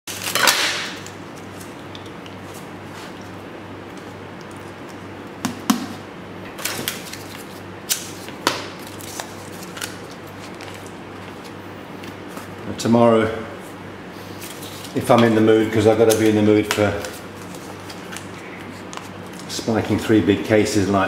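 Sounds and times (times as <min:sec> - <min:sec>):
steady low hum: 0:00.1 - 0:21.0
paper rustling: 0:06.6 - 0:11.5.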